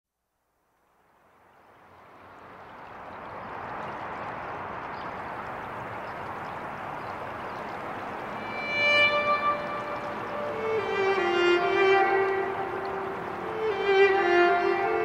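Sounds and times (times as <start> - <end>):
steady rushing ambient noise: 1.2 - 15.0
violin: 8.2 - 15.0.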